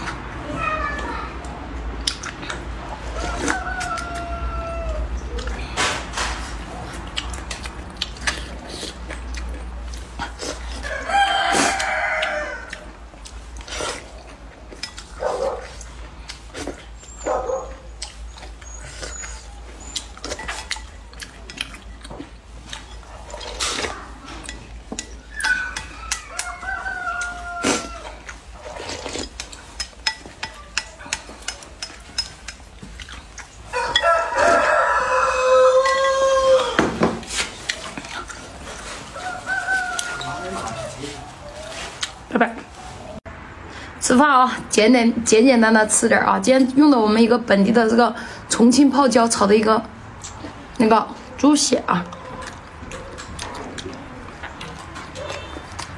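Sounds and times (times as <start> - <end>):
rooster crowing: 3.0 - 5.2, 10.8 - 13.0, 25.4 - 28.3, 33.7 - 37.1, 39.0 - 41.9
slurping noodle soup: 6.4 - 17.2, 18.0 - 29.9
chopsticks clicking on bowl: 29.4 - 34.1.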